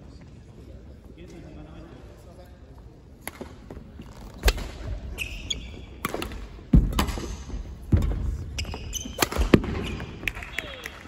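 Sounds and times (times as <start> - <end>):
shoes squeaking: 3.7 - 10.2
rackets striking shuttlecock: 6.0 - 10.3.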